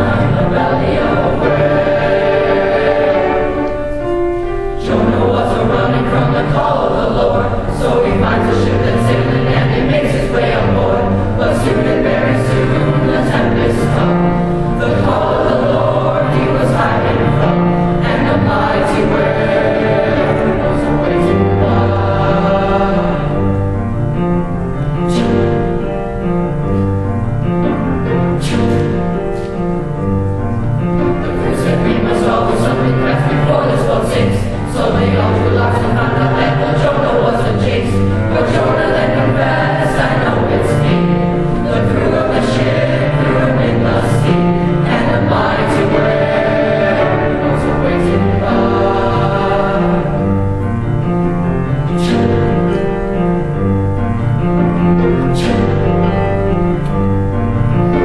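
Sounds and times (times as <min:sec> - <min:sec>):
boys' choir singing gospel: 0:00.0 - 0:26.7, 0:27.4 - 0:58.0.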